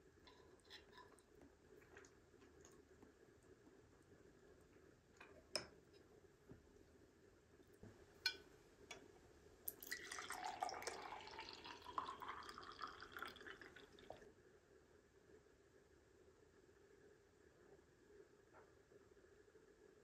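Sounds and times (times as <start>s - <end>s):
liquid pouring into a glass: 9.7s - 14.2s.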